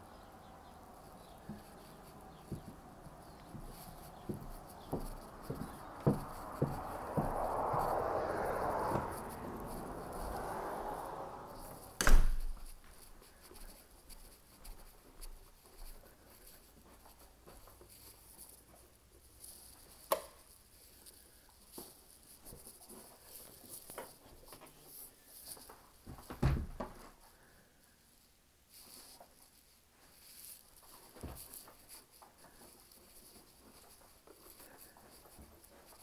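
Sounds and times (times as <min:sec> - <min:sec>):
footsteps on carpet: 0:00.7 - 0:20.0, 0:30.0 - 0:36.0
door knocks and clicks: 0:12.0 - 0:12.6.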